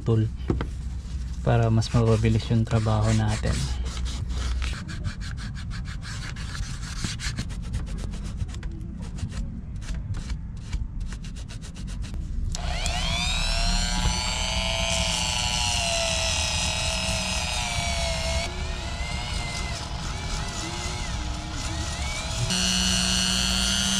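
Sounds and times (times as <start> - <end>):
cotton ball rubbing shoe sole: 2.1 - 12.2
rotary tool whining: 12.6 - 23.9.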